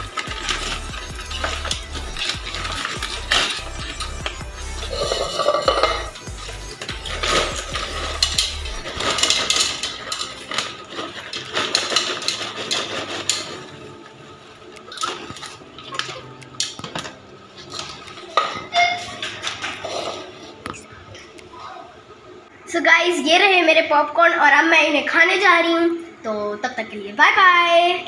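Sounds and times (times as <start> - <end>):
paper bag rustling: 0.0 - 16.4
popcorn clattering into plastic bowl: 0.0 - 20.8.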